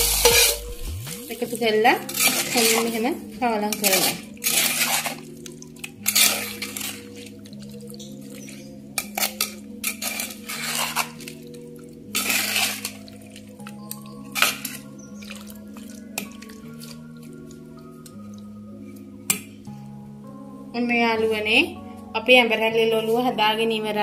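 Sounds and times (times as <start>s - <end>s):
metal spoon scraping clay pot: 0.0s - 1.0s, 2.0s - 3.0s, 3.6s - 5.3s, 6.0s - 7.3s, 8.4s - 11.4s, 12.1s - 13.0s
background music: 0.0s - 24.0s.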